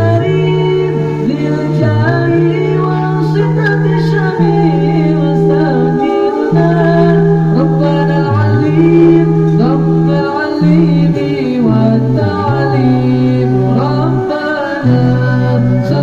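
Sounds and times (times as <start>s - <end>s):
men singing a cappella: 0.0s - 16.0s.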